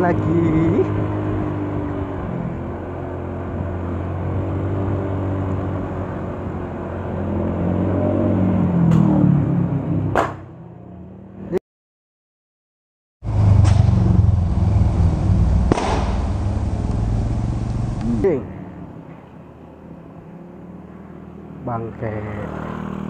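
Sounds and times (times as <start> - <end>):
engine bang: 13.2 - 18.0
motorcycle engine running: 13.2 - 18.4.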